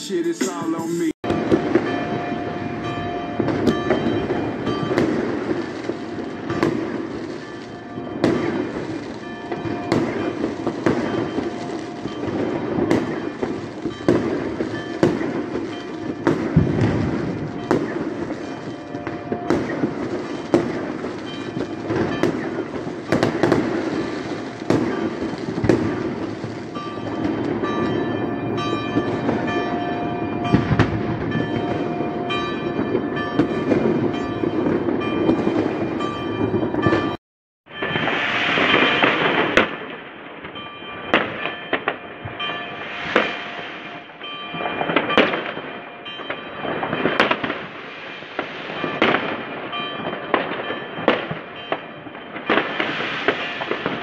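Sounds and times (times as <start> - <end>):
distant fireworks rumble and crackle: 0.4 - 54.0
nearer firework bangs: 8.2 - 28.0.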